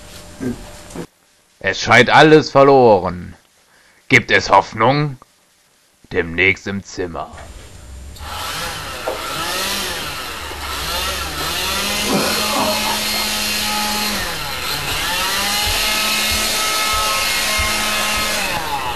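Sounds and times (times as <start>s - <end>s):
motor running loudly: 7.4s - 18.9s.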